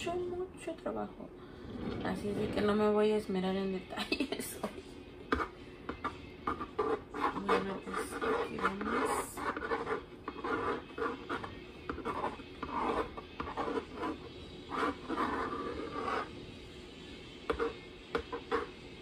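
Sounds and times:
scraper smoothing buttercream: 4.7 - 16.4, 17.4 - 19.0.

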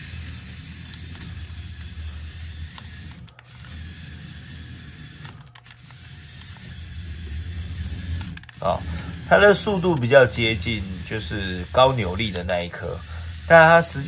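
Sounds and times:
gear and wheel clatter: 0.0 - 14.0
toy car motor whirring: 0.0 - 14.0.

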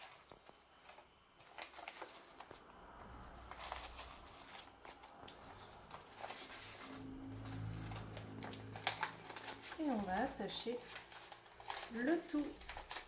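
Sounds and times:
leaves rustling: 3.4 - 13.0.

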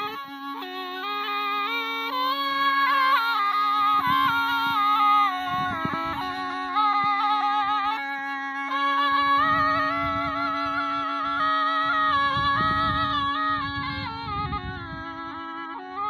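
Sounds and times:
reed pipe melody over drone: 0.0 - 16.0.

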